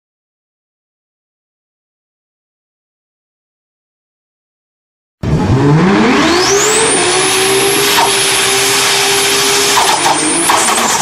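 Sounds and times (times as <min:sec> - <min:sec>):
motor whining at high speed: 0:05.2 - 0:11.0.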